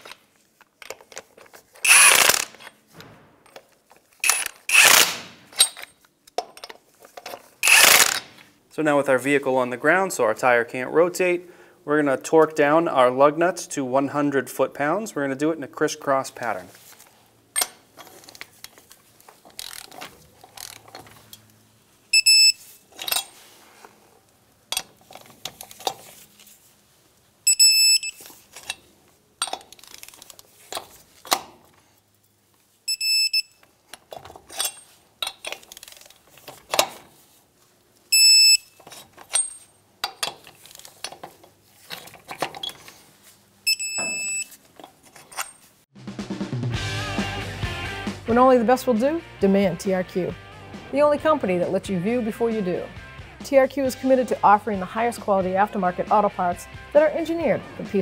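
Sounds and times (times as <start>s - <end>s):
torque wrench beeping: 1.8s - 2.6s, 4.2s - 5.8s, 7.6s - 8.3s, 22.1s - 23.2s, 27.5s - 28.3s, 32.9s - 33.6s, 38.1s - 38.8s, 43.7s - 44.6s
metallic clicks of wrench: 19.5s - 21.5s.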